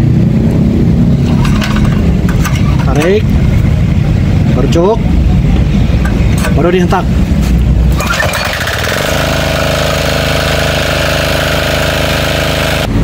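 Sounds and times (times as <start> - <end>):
diesel engine pull-started and running: 0.0 - 13.0.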